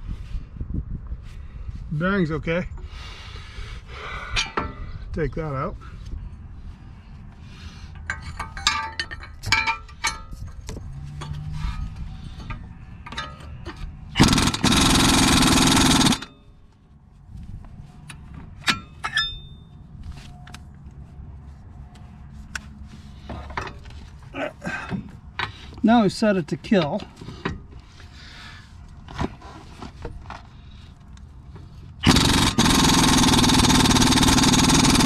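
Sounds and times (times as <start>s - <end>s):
impact wrench burst: 14.1s - 16.4s, 32.0s - 35.0s
metallic clinks of tools: 18.6s - 19.7s.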